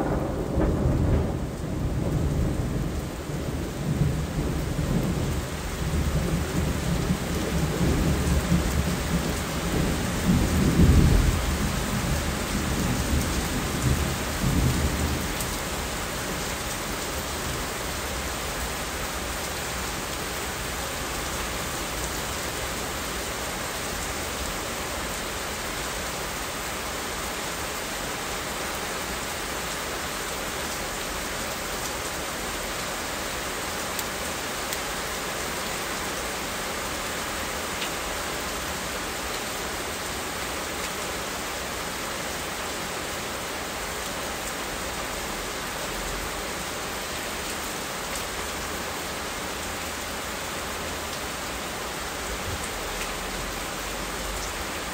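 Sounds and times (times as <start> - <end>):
low rumble of thunder: 0.0 - 17.6
steady rain falling: 0.0 - 54.9.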